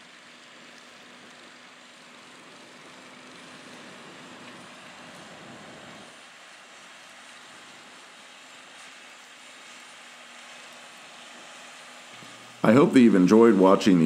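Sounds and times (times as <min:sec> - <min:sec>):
distant tractor engine hum: 0:00.0 - 0:14.0.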